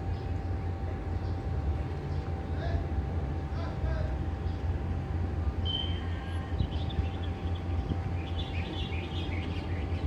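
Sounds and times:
steady low rumble: 0.0s - 10.0s
small birds chirping: 5.6s - 10.0s.

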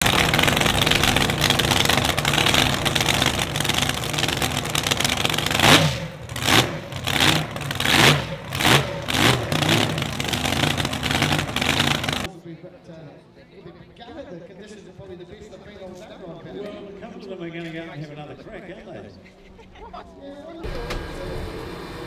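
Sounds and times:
boat engine revving: 0.0s - 12.3s.

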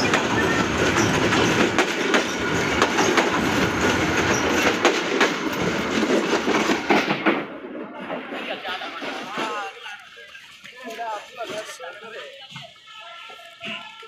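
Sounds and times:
train wheels rumbling on rail: 0.0s - 9.8s
wheels clattering on rail joints: 0.0s - 14.0s.

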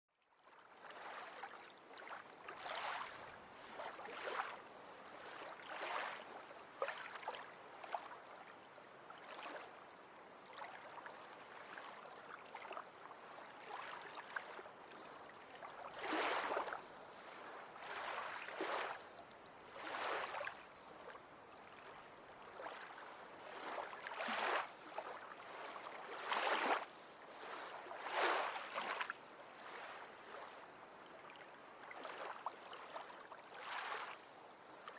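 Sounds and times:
water washing and lapping: 0.8s - 8.2s, 15.4s - 19.0s, 19.7s - 30.6s, 31.9s - 34.2s.

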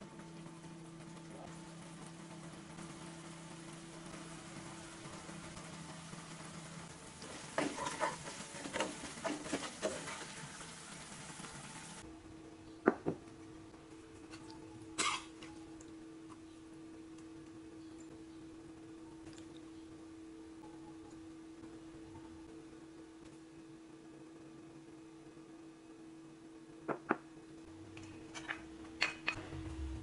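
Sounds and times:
sauce sizzling in a frying pan: 1.8s - 12.0s
spatula scraping and knocking pan: 7.4s - 10.4s
faint steady hum: 10.4s - 30.0s.

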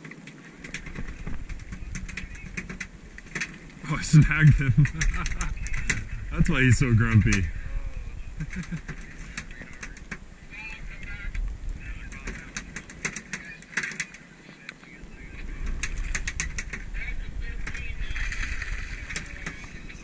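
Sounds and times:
sharp clicks: 15.6s - 16.9s.

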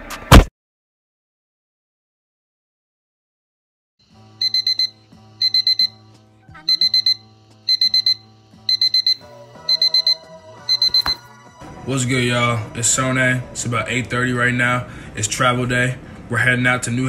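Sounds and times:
quiet music: 4.0s - 17.0s
alarm beeping in quick groups: 4.4s - 6.0s, 6.6s - 11.2s.

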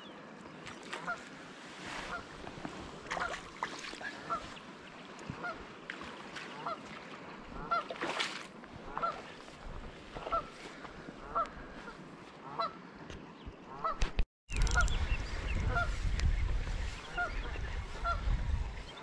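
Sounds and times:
rustles in wet grass: 0.6s - 12.7s, 14.6s - 19.0s
waterfowl honking: 2.0s - 2.3s, 3.1s - 3.4s, 4.1s - 4.6s, 5.3s - 5.6s, 6.5s - 6.9s, 7.5s - 8.0s, 8.8s - 9.3s, 10.2s - 12.8s, 15.7s - 16.0s, 17.1s - 18.2s.

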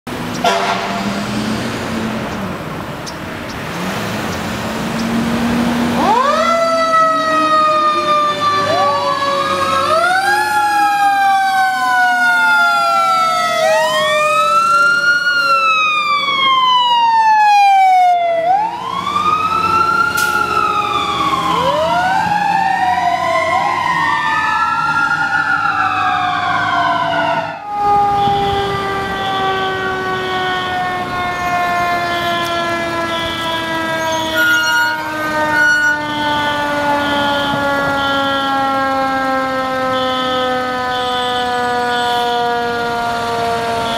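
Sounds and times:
sirens wailing: 0.1s - 43.9s.

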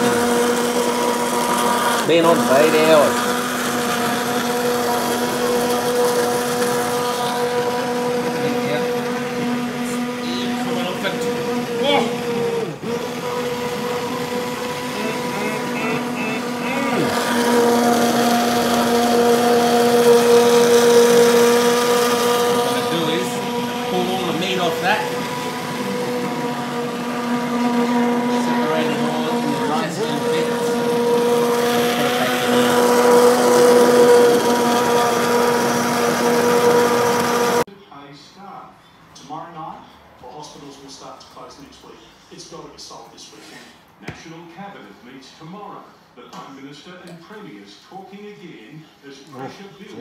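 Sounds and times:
stick blender running: 0.0s - 37.7s
machine hum: 3.2s - 37.7s.

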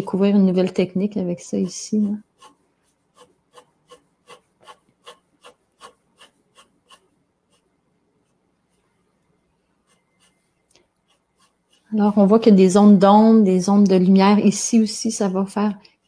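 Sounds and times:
pencil scratching on paper: 0.0s - 8.9s, 9.7s - 12.5s.

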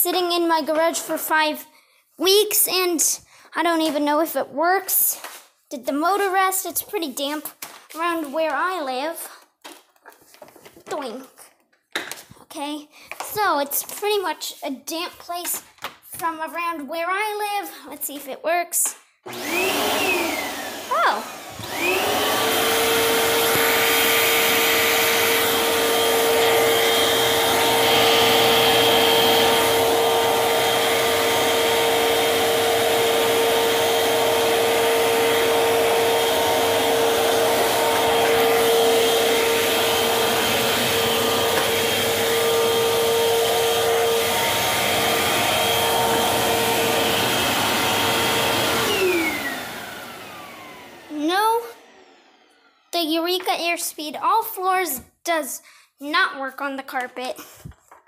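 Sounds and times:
vacuum cleaner motor whine: 19.3s - 52.9s.

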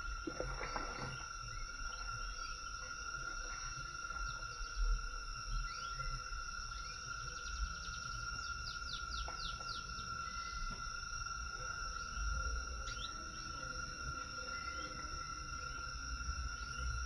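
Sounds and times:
low rumble with soft thumps: 0.0s - 6.7s
insect drone: 0.0s - 17.0s.

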